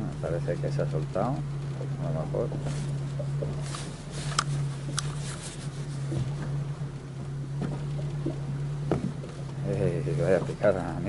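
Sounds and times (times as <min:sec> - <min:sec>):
boat engine idling: 0:00.0 - 0:11.0
fishing gear scraping: 0:02.4 - 0:06.8.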